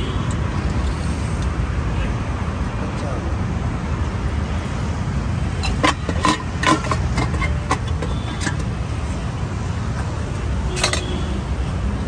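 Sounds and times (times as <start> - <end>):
road traffic rumble: 0.0 - 12.0
cookware clinking: 5.6 - 8.6.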